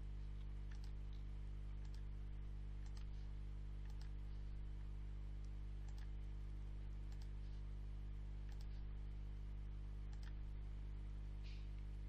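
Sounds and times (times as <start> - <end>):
steady low hum: 0.0 - 12.0
computer mouse clicks: 0.7 - 1.2, 1.8 - 2.1, 2.8 - 3.2, 3.8 - 4.2, 5.4 - 6.1, 7.1 - 7.4, 8.5 - 8.8, 10.1 - 10.4.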